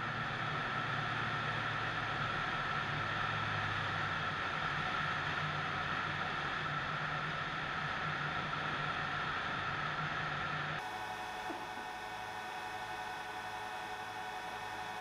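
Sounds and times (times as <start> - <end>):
aircraft engine hum: 10.8 - 15.0.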